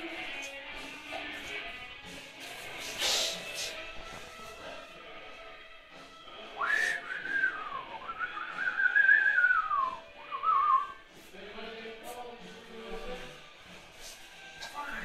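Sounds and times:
person whistling a tune: 0:06.4 - 0:11.1, 0:14.7 - 0:15.0.

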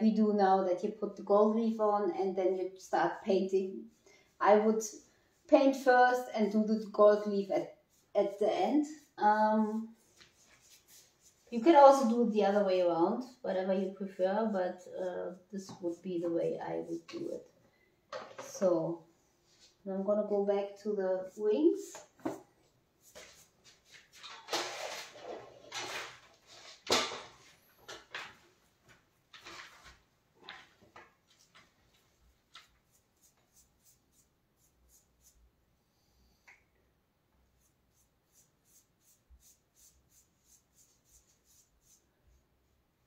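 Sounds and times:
paintbrush swishing on wall: 0:03.1 - 0:12.8, 0:13.6 - 0:17.4, 0:20.7 - 0:26.8, 0:31.3 - 0:35.5, 0:37.4 - 0:42.8.

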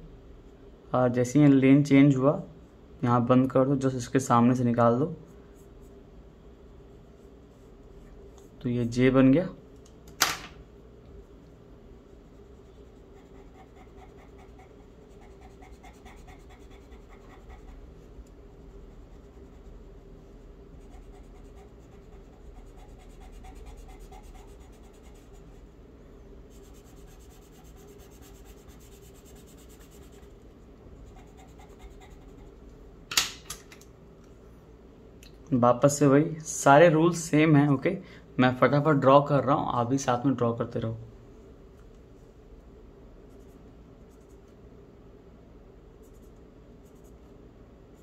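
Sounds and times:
steady low hum: 0:00.0 - 0:48.0
pencil scratching on paper: 0:12.1 - 0:18.0, 0:18.6 - 0:19.9, 0:20.7 - 0:25.7, 0:26.5 - 0:30.4, 0:31.0 - 0:32.6, 0:46.0 - 0:47.2.

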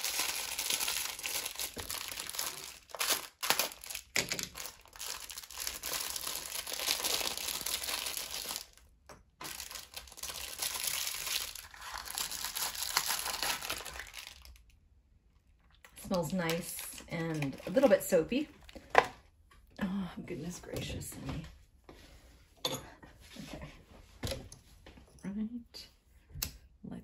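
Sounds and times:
packaging crackling rustle: 0:00.0 - 0:14.8, 0:15.8 - 0:18.9.

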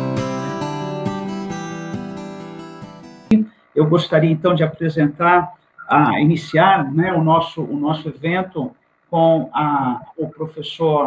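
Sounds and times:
strummed acoustic guitar: 0:00.0 - 0:03.3.

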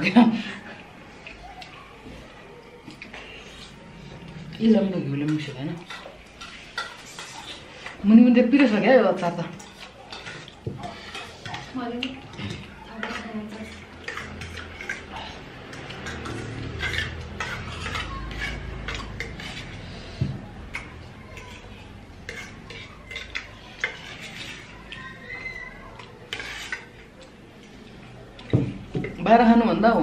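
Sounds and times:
spoons clinking on ceramic plates: 0:05.1 - 0:08.0, 0:09.2 - 0:29.3.

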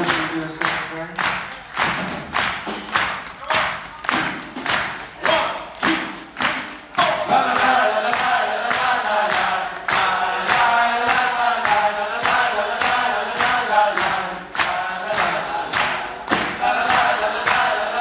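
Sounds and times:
hand-clapping in time: 0:00.0 - 0:18.0
voices singing a chorus: 0:03.4 - 0:18.0.

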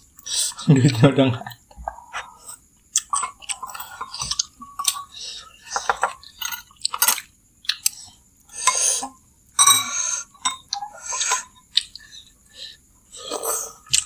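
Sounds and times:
spoons clinking on ceramic bowls: 0:09.6 - 0:11.5.

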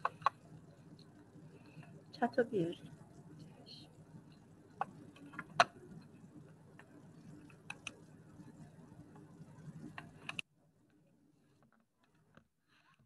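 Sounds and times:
faint low room hum: 0:00.0 - 0:13.0.

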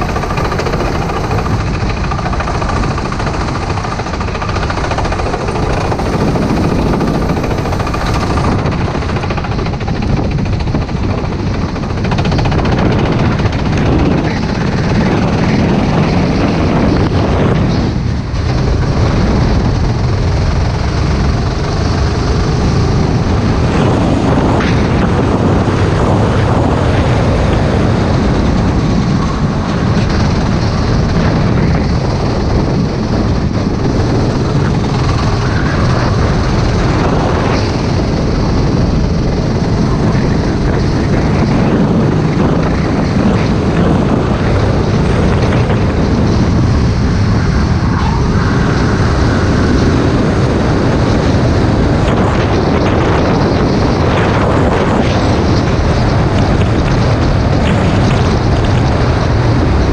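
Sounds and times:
racing kart engine: 0:00.0 - 0:59.9.

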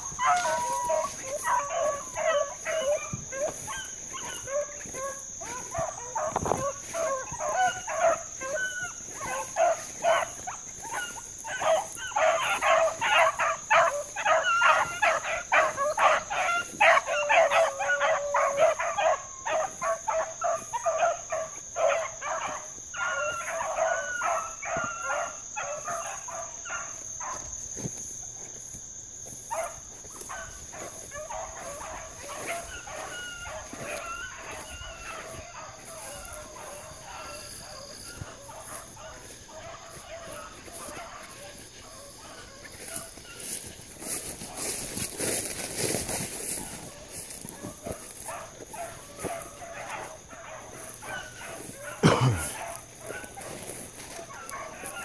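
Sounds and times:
hounds baying: 0:00.0 - 0:55.0.

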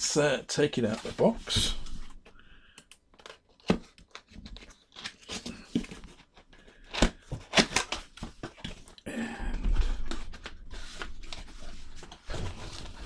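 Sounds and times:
cardboard flaps scraping and rustling: 0:10.0 - 0:13.0.

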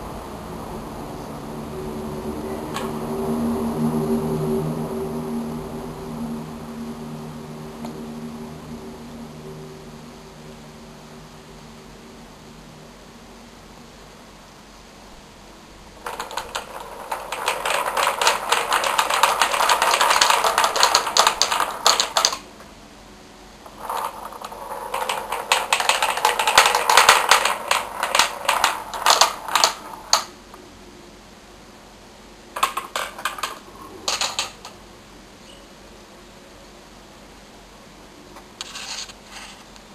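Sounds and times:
balls rattling down wooden tracks: 0:02.7 - 0:03.0, 0:16.0 - 0:22.5, 0:23.7 - 0:30.3, 0:32.6 - 0:34.8.

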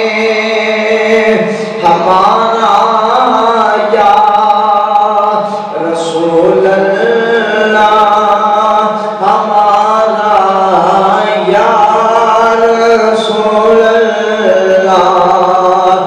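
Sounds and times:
person chanting melodically: 0:00.0 - 0:16.0.

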